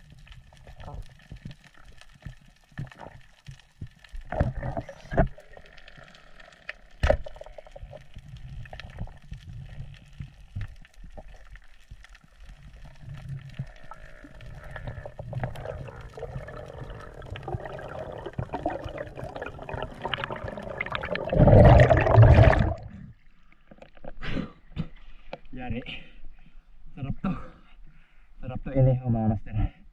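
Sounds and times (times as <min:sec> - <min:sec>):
underwater clicks and crackles: 0:00.0 - 0:25.6
underwater rushing: 0:12.5 - 0:23.2
water gushing: 0:12.8 - 0:23.1.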